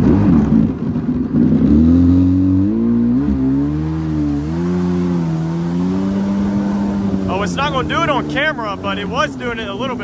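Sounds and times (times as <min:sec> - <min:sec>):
jet ski engine revving: 0:00.0 - 0:10.0
water rushing: 0:02.6 - 0:10.0.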